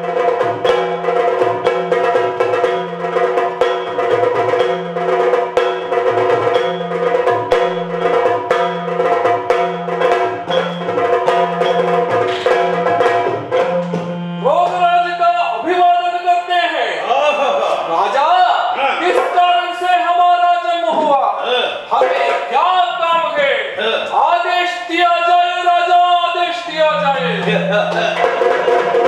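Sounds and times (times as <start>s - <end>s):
deep drum beat: 0.0s - 15.2s, 26.8s - 29.0s
rapid drum strokes: 0.0s - 15.2s, 26.7s - 29.0s.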